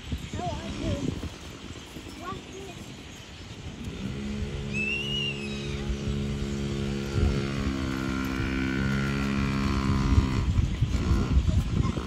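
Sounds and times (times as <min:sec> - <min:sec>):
high bird chirp: 0:00.1 - 0:09.2
small motorbike engine running: 0:03.6 - 0:12.0.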